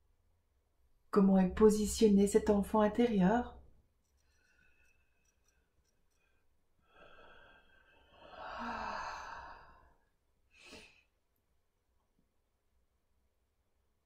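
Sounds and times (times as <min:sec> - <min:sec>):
short breath: 0:06.8 - 0:11.1
woman sighing: 0:08.2 - 0:09.8.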